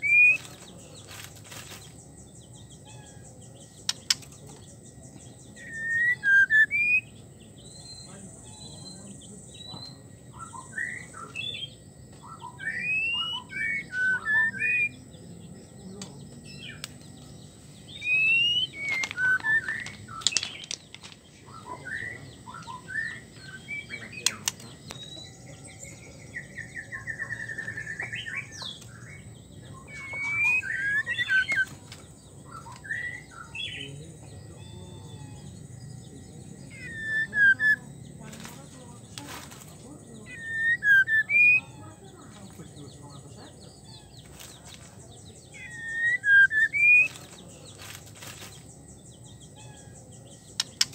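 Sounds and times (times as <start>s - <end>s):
bird whistled chirps: 5.6s - 9.0s, 9.6s - 15.0s, 17.9s - 20.8s, 21.5s - 31.7s, 36.7s - 38.0s, 40.2s - 41.8s, 45.4s - 47.2s
bird rattling trill: 50.4s - 50.9s.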